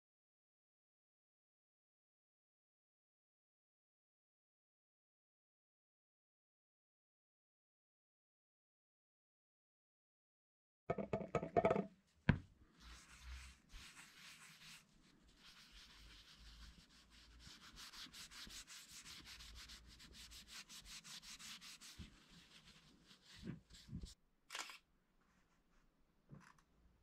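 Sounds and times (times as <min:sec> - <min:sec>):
knocks: 0:10.9 - 0:12.4
thumps: 0:10.9 - 0:12.5.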